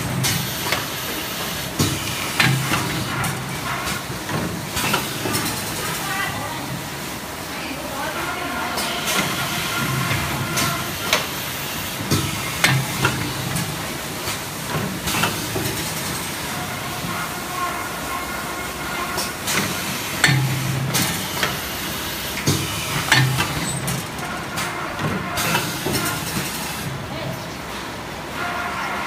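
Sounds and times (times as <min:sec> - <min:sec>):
machinery hiss and hum: 0:00.0 - 0:29.0
machine clacks and knocks: 0:22.4 - 0:26.7.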